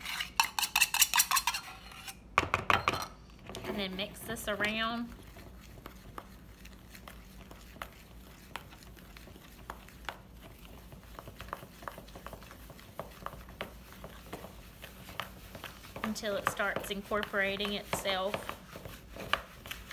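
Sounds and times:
utensil stirring dough in plastic bowl: 0.0s - 2.1s, 3.4s - 19.9s.

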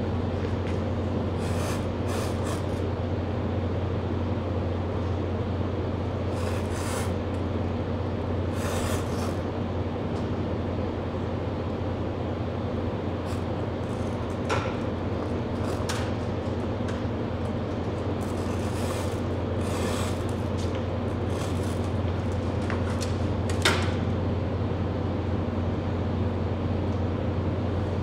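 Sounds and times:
constant low hum: 0.0s - 28.0s
torch flame hissing: 1.3s - 2.9s, 8.4s - 9.5s.

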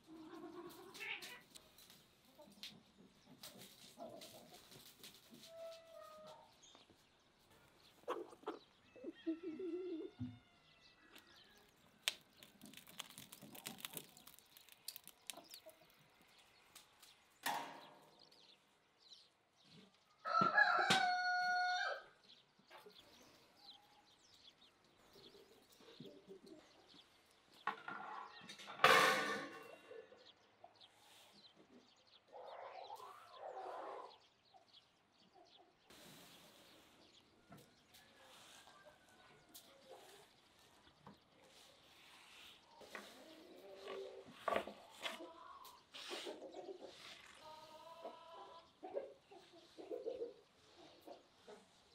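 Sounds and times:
small birds chirping: 0.0s - 28.8s, 29.6s - 51.9s
rooster crowing: 20.2s - 22.1s.

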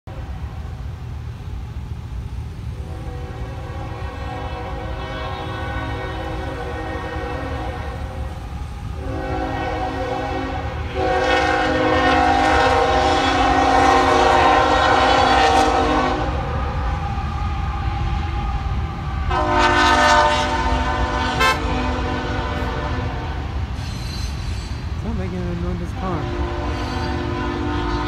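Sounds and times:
locomotive air horn blasts: 2.8s - 16.8s, 19.2s - 23.6s, 25.9s - 28.0s.

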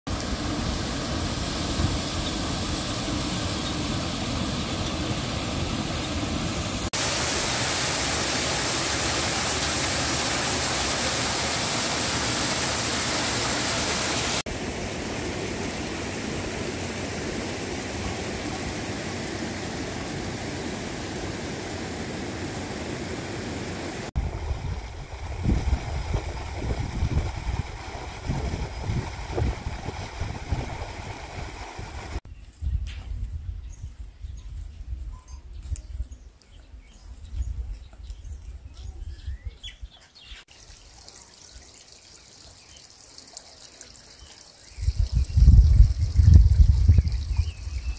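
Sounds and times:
river flowing: 0.1s - 32.2s
water gushing under a water mill: 0.1s - 32.2s, 40.5s - 47.9s.

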